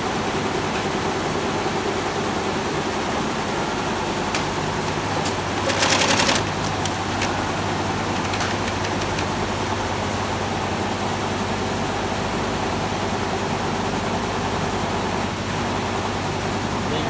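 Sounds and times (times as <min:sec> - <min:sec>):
embroidery machines stitching: 0:04.4 - 0:10.0
loud rattle: 0:04.8 - 0:09.8.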